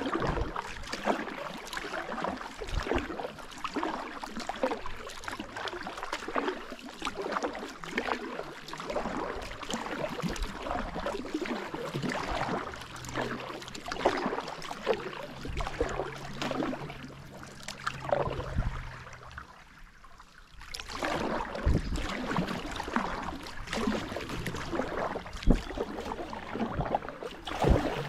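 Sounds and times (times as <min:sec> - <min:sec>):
water dripping off paddle: 0:00.0 - 0:19.5
paddle splashing water: 0:00.0 - 0:28.0.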